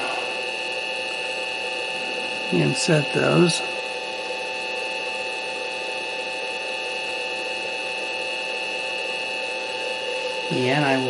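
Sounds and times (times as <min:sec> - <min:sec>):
high whining tones: 0:00.0 - 0:07.1
electric motor hum: 0:00.0 - 0:11.0.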